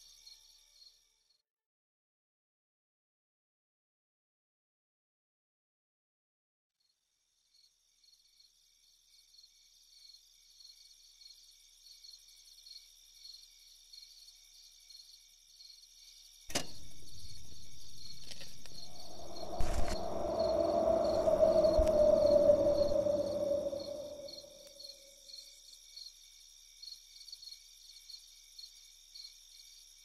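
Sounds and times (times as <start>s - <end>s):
crickets chirping: 0.0s - 1.4s, 7.1s - 30.0s
low droning tone: 16.7s - 24.6s.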